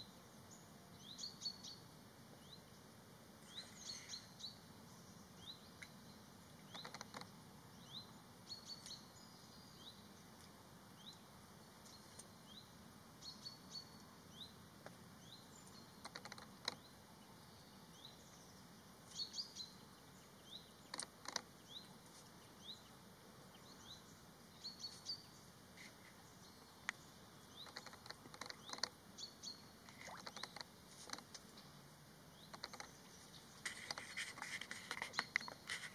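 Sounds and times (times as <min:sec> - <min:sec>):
low steady background hiss: 0:00.0 - 0:35.9
small bird chirping: 0:03.4 - 0:10.2, 0:15.2 - 0:35.9.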